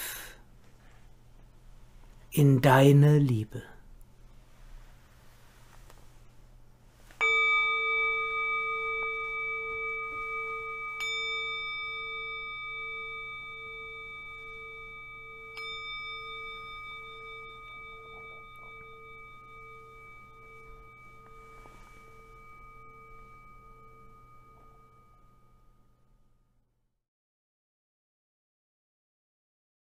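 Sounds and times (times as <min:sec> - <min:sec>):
singing bowl ringing: 0:07.0 - 0:26.8.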